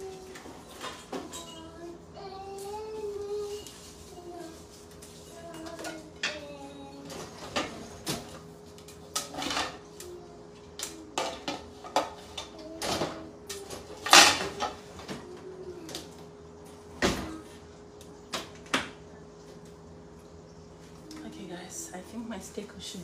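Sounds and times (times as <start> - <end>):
dishes and utensils clinking: 0.3 - 1.8, 5.4 - 8.3, 9.1 - 9.9, 14.0 - 14.8.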